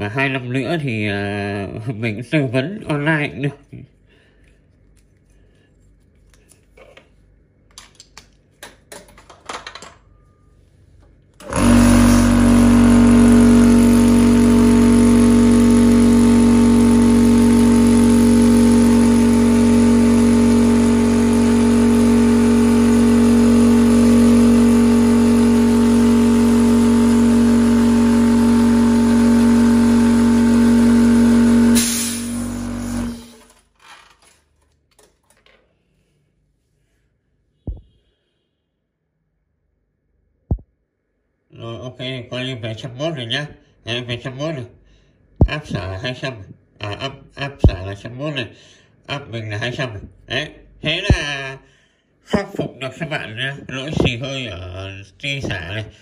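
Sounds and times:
air compressor humming: 11.2s - 33.6s.

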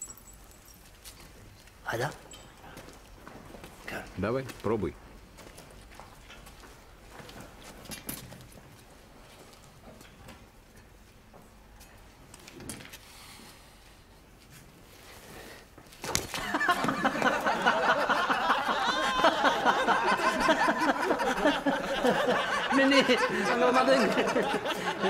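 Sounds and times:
men laughing loudly: 16.4s - 25.0s.

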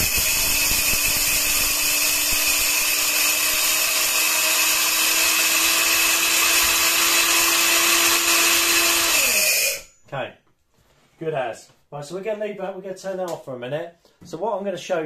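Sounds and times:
grain grinder motor whine: 0.0s - 9.8s.

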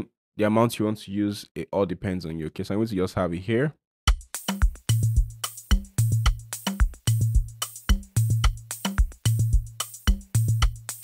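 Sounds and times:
hi-hat hits: 4.1s - 11.0s
programmed drum loop: 4.1s - 11.0s.

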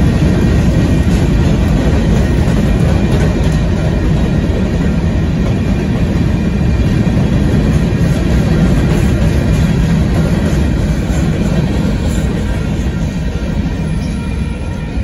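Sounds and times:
train wheels rumbling on rails: 0.0s - 15.0s.

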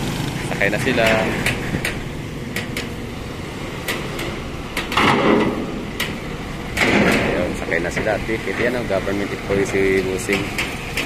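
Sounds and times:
sharp clicks and knocks: 1.0s - 3.0s, 3.8s - 8.9s, 9.7s - 11.0s.

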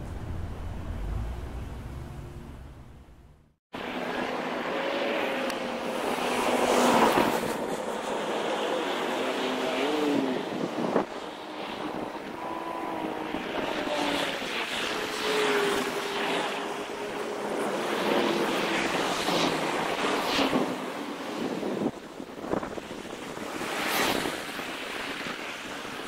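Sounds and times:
traffic hum: 0.0s - 14.5s
faint wavering engine tones: 0.0s - 19.0s
wind buffeting microphone: 9.8s - 26.0s.

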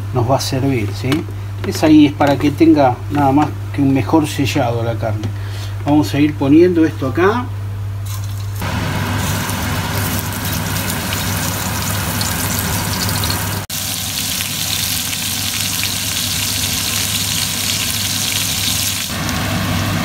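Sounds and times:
meat sizzling in hot oil: 8.6s - 20.0s.

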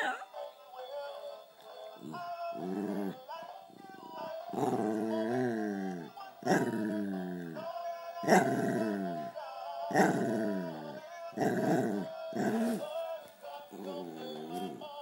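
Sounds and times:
small dog growling: 2.0s - 3.2s, 3.8s - 7.6s, 8.2s - 9.3s, 9.9s - 12.9s, 13.7s - 14.9s.

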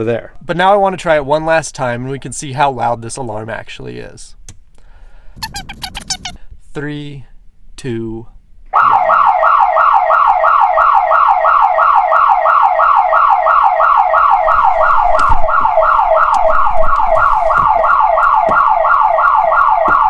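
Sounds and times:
electronic alarm siren wailing: 8.8s - 20.0s.

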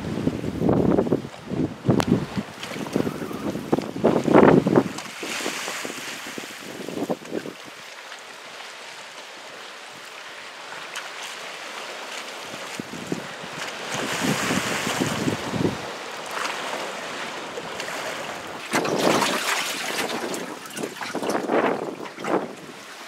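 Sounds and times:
wind buffeting microphone: 0.0s - 7.8s, 12.7s - 16.0s, 17.7s - 23.0s
choppy sea waves: 0.0s - 23.0s
water splashing close by: 2.1s - 23.0s.

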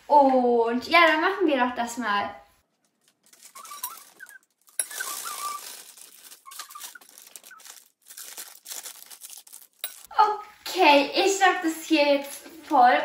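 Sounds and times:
plastic piping bag crinkling: 2.6s - 10.1s.

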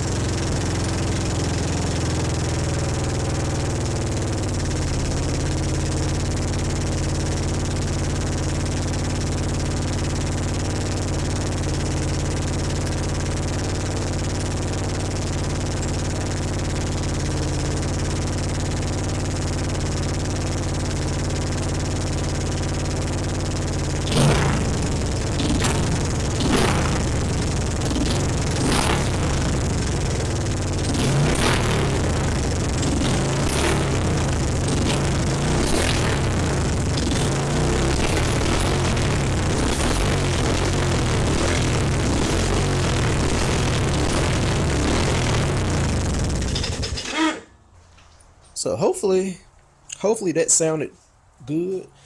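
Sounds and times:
engine idling: 0.0s - 48.0s
loud exhaust bangs: 22.6s - 47.4s.

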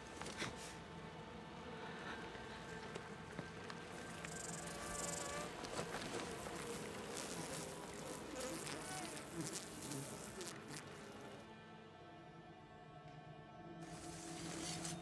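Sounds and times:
wasps buzzing: 3.9s - 11.4s.

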